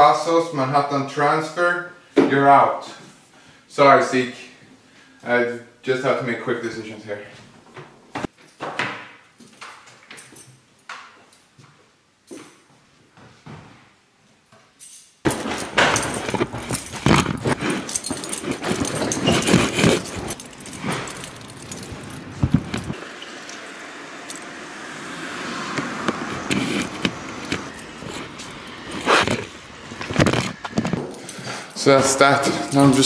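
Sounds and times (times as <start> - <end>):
street noise: 15.3 - 33.0.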